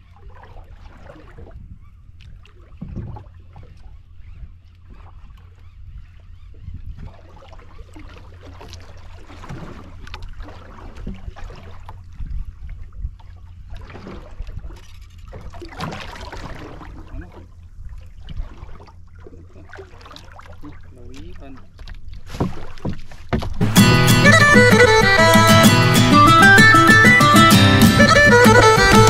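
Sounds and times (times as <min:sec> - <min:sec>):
sea water lapping against hull: 0:00.0 - 0:29.0.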